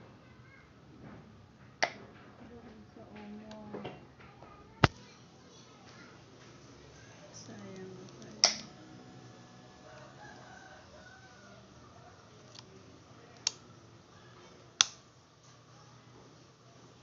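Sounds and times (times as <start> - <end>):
sharp clicks: 7.6 - 8.7
rooster crowing faintly: 9.7 - 12.4.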